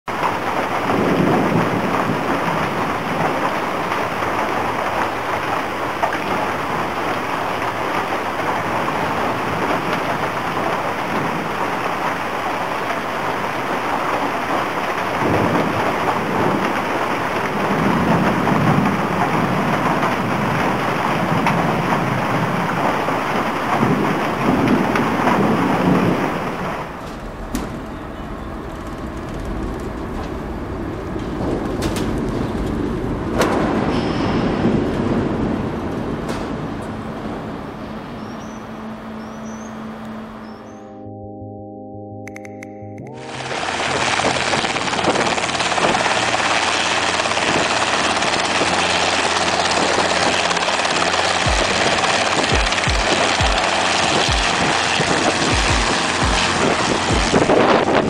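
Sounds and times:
thunder rolling: 0:00.1 - 0:38.4, 0:43.1 - 0:58.0
heavy rain: 0:00.1 - 0:40.6, 0:43.1 - 0:58.0
low rumble: 0:26.1 - 0:38.1.

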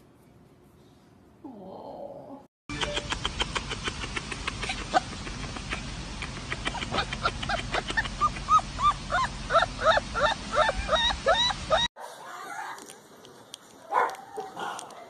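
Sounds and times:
puppy yelping: 0:06.6 - 0:12.9.

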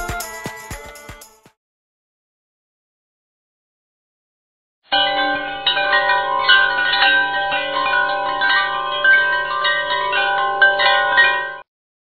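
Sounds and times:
chime-like bell melody: 0:00.0 - 0:01.4, 0:04.9 - 0:11.7.

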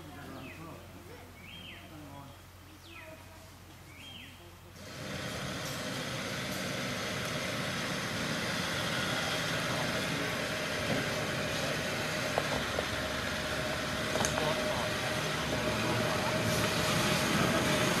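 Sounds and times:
car engine running: 0:04.8 - 0:18.0.

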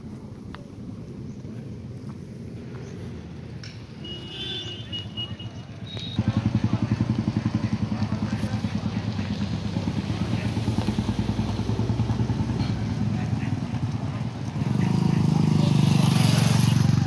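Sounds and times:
motorcycle engine running: 0:05.9 - 0:17.0.

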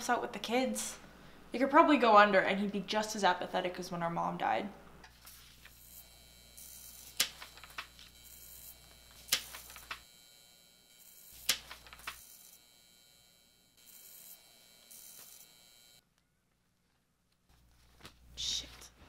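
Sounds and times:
paper rustling: 0:05.2 - 0:05.8, 0:07.1 - 0:08.1, 0:09.2 - 0:10.0, 0:11.4 - 0:12.2, 0:16.9 - 0:18.3
paper snapping: 0:07.1 - 0:07.9, 0:09.2 - 0:10.0, 0:11.4 - 0:12.2.

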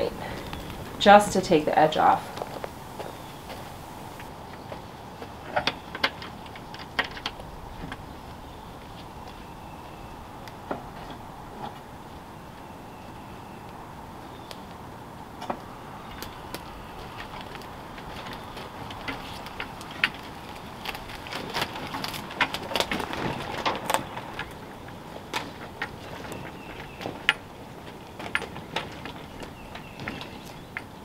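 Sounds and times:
wooden cart knocking and creaking: 0:17.0 - 0:31.0.

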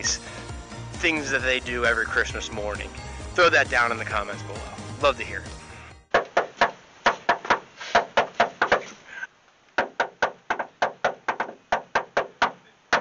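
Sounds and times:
rapid knocking on a door: 0:06.1 - 0:08.9, 0:09.8 - 0:13.0.

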